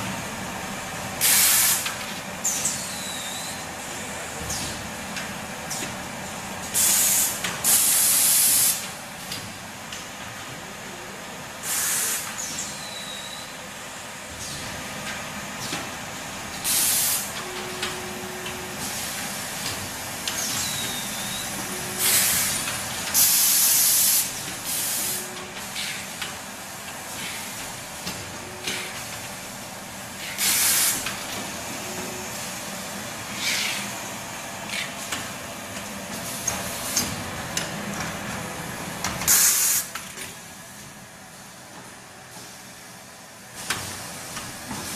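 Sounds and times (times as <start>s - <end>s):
hisses of released air: 1.2s - 1.9s, 6.8s - 8.8s, 11.6s - 12.6s, 16.6s - 17.3s, 22.0s - 25.2s, 30.2s - 31.1s, 39.3s - 39.9s
machinery running: 16.2s - 39.3s.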